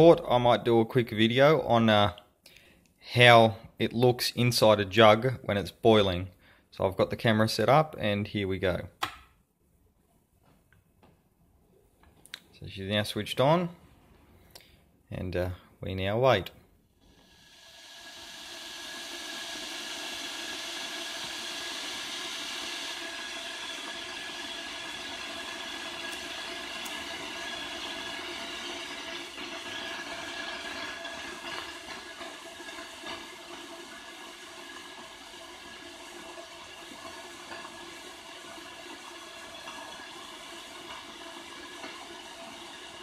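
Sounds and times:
electric kettle element hissing: 0:00.0 - 0:00.7, 0:17.0 - 0:43.0.

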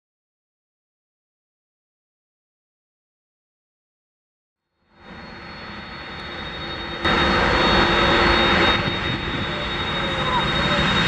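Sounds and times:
jet engines whining: 0:04.8 - 0:11.0.

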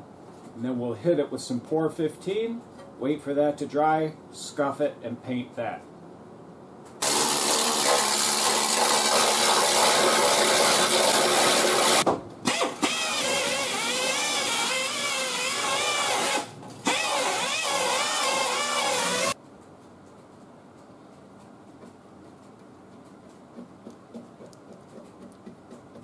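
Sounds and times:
wire wheel drill scrubbing rust: 0:07.0 - 0:19.4
pneumatic needle scaler on steel: 0:11.4 - 0:19.4.

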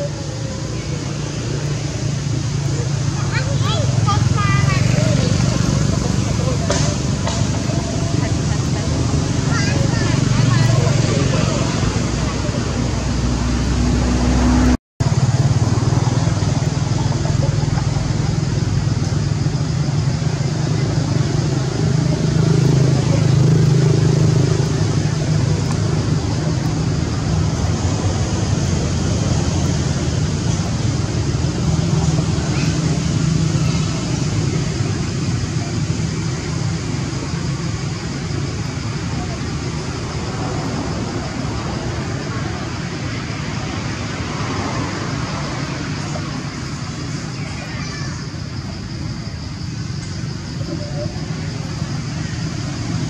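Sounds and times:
engine idling hum: 0:00.0 - 0:53.0
steady rushing noise: 0:00.0 - 0:53.0.

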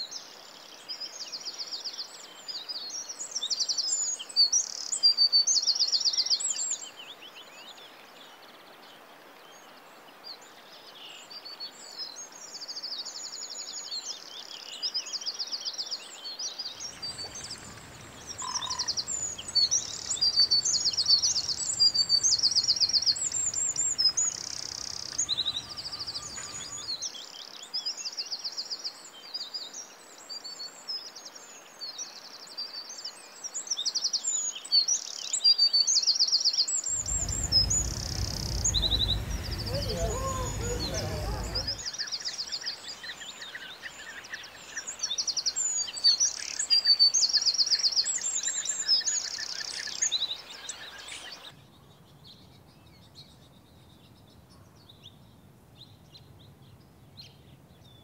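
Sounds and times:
songbirds chirping: 0:00.1 - 0:35.5, 0:36.6 - 0:58.0
bird rattling trills: 0:16.9 - 0:26.9, 0:36.9 - 0:41.8.

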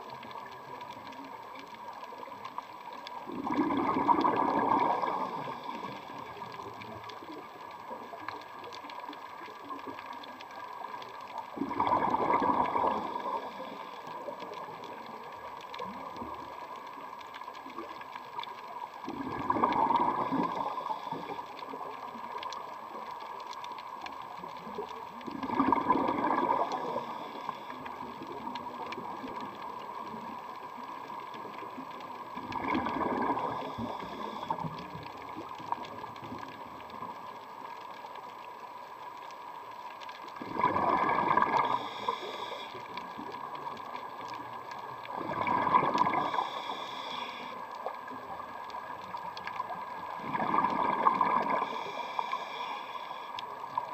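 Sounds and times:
underwater bubble bursts: 0:00.0 - 0:38.4, 0:40.0 - 0:46.9, 0:47.7 - 0:52.5
faint hum: 0:40.9 - 0:49.2, 0:49.9 - 0:53.9.

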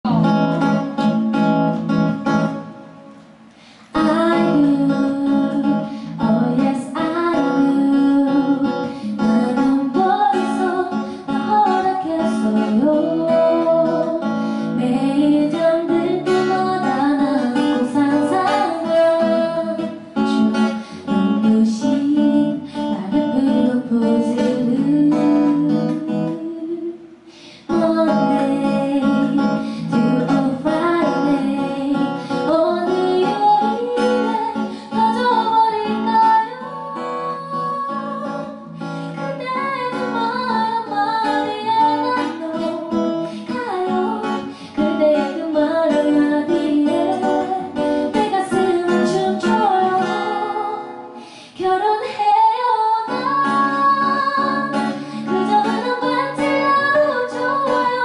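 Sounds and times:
woman singing: 0:00.0 - 0:02.8, 0:03.8 - 0:58.0
acoustic guitar: 0:00.0 - 0:58.0.

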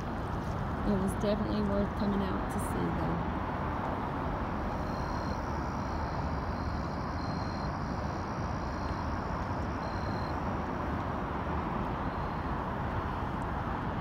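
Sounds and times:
steady rushing noise: 0:00.0 - 0:14.0
faint high-pitched tones: 0:04.7 - 0:10.4.

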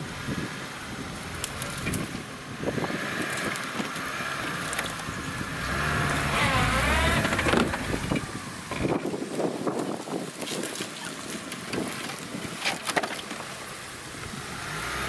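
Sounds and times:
wind on microphone: 0:00.0 - 0:12.7
car engine running: 0:01.2 - 0:09.1.

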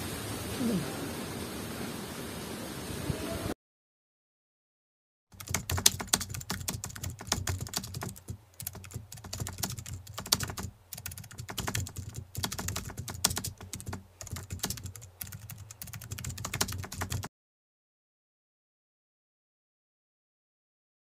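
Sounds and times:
keyboard typing clicks: 0:05.4 - 0:17.3.

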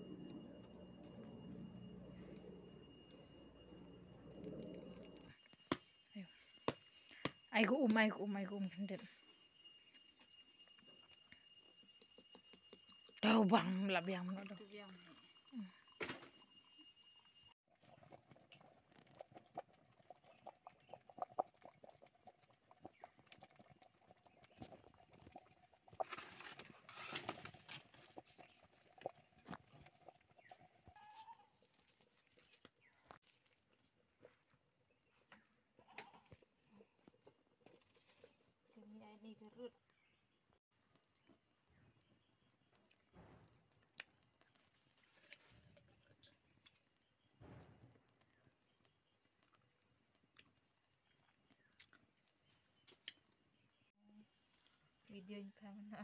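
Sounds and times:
wood fire crackling and popping: 0:40.7 - 0:53.5.

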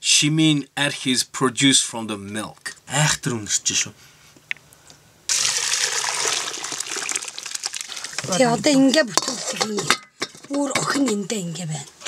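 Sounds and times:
liquid pouring into a pot: 0:05.3 - 0:08.4.

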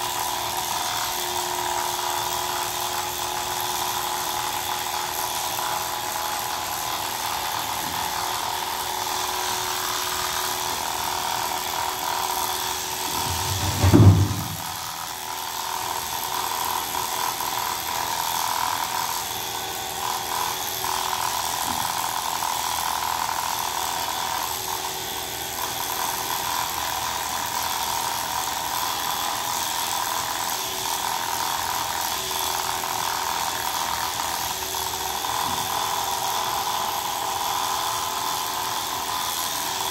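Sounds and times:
electric clippers buzzing: 0:00.0 - 0:39.9
loud low thump: 0:13.1 - 0:14.8.

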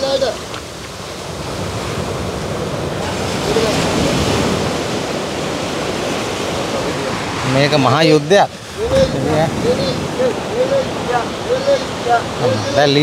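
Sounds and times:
ocean surf rushing: 0:00.0 - 0:13.0
men chanting faintly: 0:08.7 - 0:13.0.

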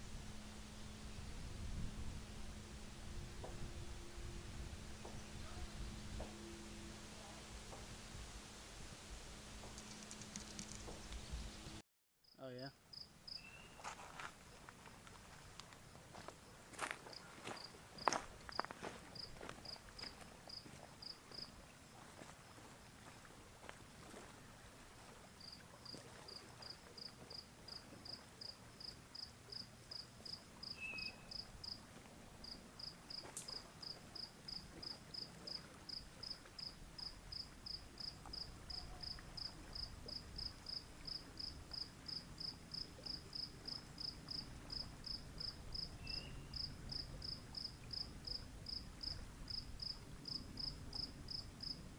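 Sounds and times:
cricket chirping: 0:12.2 - 0:14.0, 0:15.9 - 0:21.6, 0:25.4 - 0:31.8, 0:32.4 - 0:51.8.

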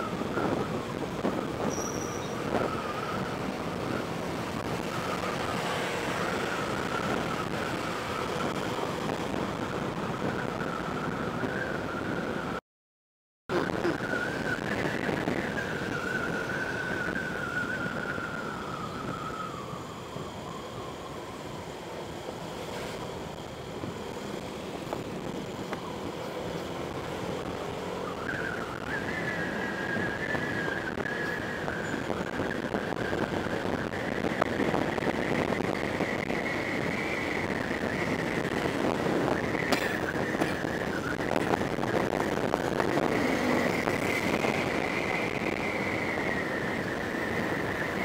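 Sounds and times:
wind and road rush: 0:00.0 - 0:12.6, 0:13.5 - 0:48.0
scooter engine whine: 0:13.5 - 0:48.0.

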